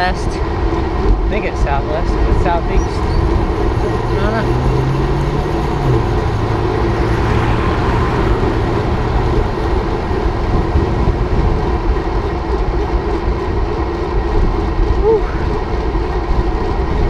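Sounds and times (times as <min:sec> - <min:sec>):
wind rushing over microphone: 0:02.2 - 0:13.7.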